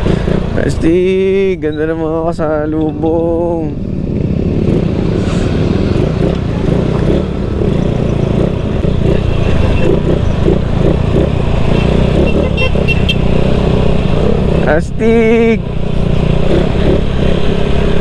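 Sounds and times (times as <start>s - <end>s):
scooter engine and road rumble: 0.0s - 18.0s.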